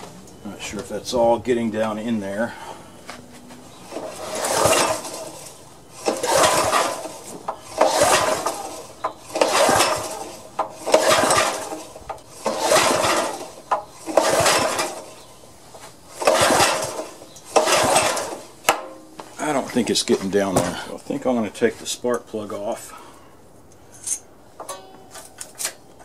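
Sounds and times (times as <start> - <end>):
engine turning over without starting: 3.7 - 21.0
recoil starter rope pulls: 3.8 - 21.0.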